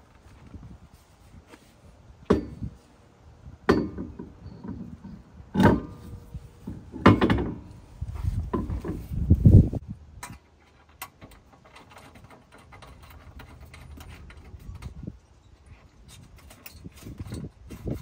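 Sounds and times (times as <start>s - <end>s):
metallic knocks and clunks: 2.3s - 2.7s, 3.6s - 7.8s, 8.4s - 9.1s, 10.2s - 15.1s.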